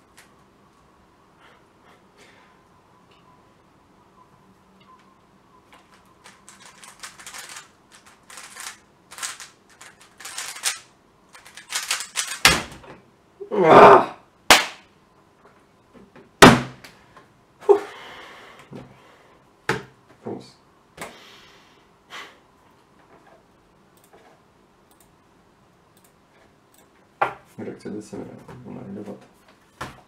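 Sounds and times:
puzzle cube plastic clicking turns: 6.2s - 12.4s.

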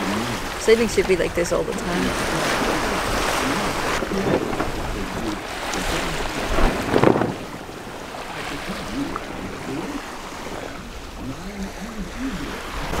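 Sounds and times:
water rushing past a yacht: 0.0s - 13.0s
wind: 0.0s - 13.0s.

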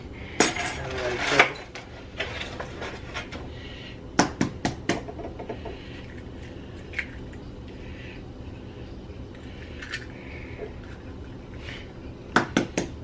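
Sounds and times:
eggs tapped on a bowl: 4.2s - 5.8s, 12.3s - 13.0s.

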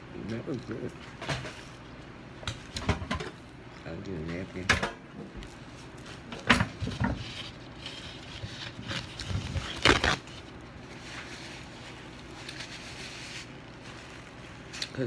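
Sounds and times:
paper rustling: 5.5s - 15.0s.

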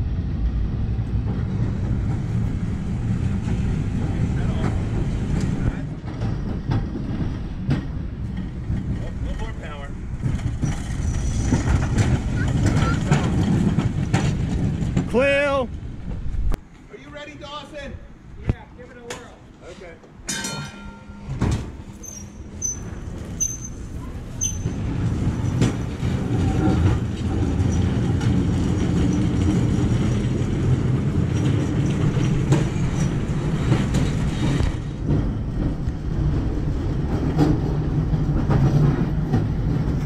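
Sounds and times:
steel wheels rumbling on rail: 0.0s - 16.6s, 19.2s - 40.0s.

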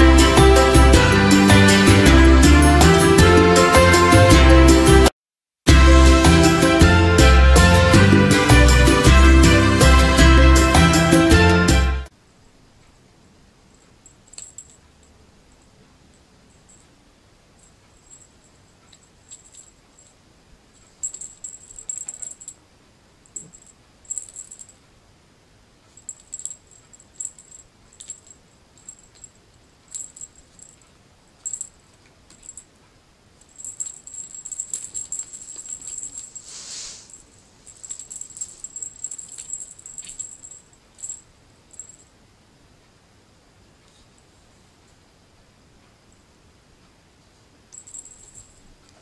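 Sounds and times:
cat toy rattling and jingling: 14.1s - 15.1s, 17.6s - 20.2s, 20.8s - 22.6s, 23.3s - 24.8s, 25.9s - 32.7s, 33.4s - 42.1s, 47.7s - 48.7s.

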